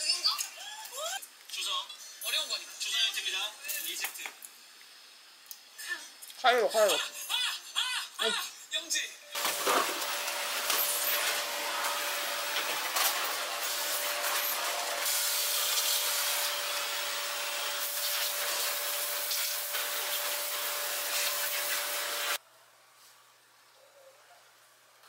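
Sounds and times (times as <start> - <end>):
vacuum cleaner whining: 9.4 - 22.4.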